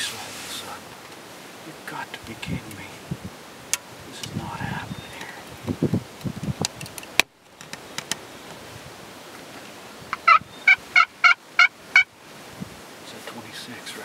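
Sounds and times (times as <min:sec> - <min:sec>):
turkey yelps: 0:10.1 - 0:12.1.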